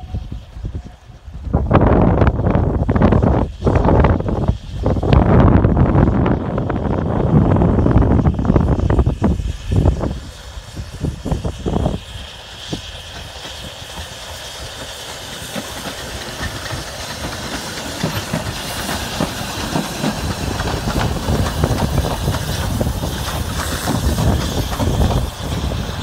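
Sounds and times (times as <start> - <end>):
steam hissing: 0.0 - 26.0
wheels clicking over rail joints: 13.0 - 26.0.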